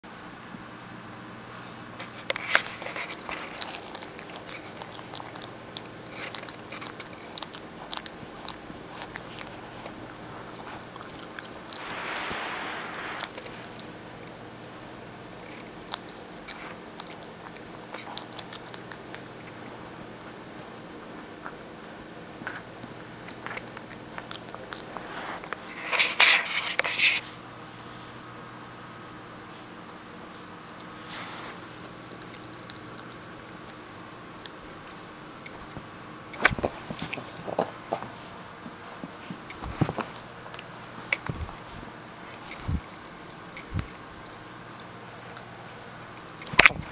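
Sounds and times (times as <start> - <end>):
puppy teeth gnawing hard nylon: 2.0 - 12.1, 32.1 - 44.1, 46.3 - 46.9
puppy teeth clicking on chew bone: 3.0 - 11.8.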